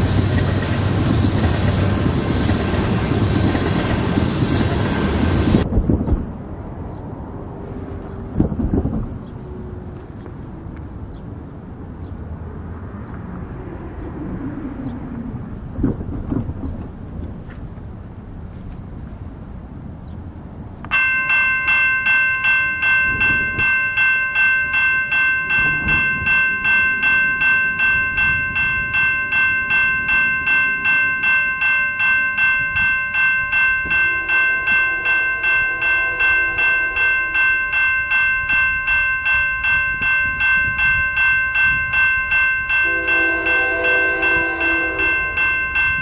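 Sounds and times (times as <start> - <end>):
railroad crossing bell ringing: 0.0 - 5.7, 20.9 - 46.0.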